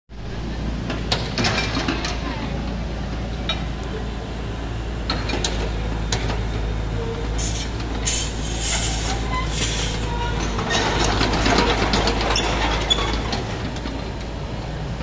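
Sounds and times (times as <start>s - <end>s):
excavator engine humming: 0.2s - 15.0s
harsh clanking clatter: 7.8s - 14.0s.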